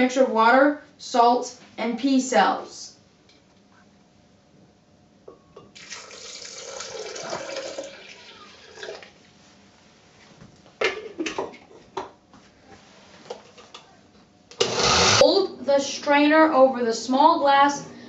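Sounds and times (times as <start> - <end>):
water pouring into blender jar: 5.8 - 9.1.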